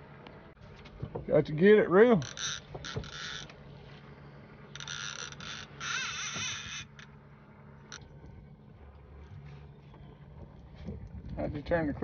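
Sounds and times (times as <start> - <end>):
fishing reel clicker ratcheting: 2.2 - 3.5, 4.8 - 7.1.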